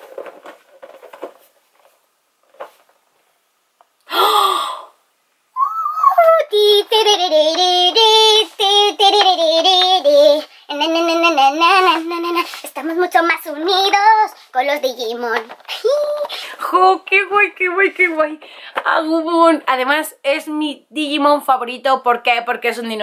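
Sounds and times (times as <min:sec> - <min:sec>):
woman singing unaccompanied: 0:05.6 - 0:14.4, 0:16.6 - 0:19.8.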